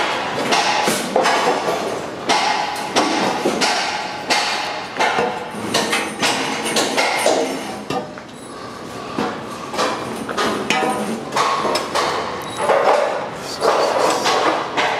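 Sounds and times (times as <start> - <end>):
hammer knocks on metal formwork: 0.4 - 8.1.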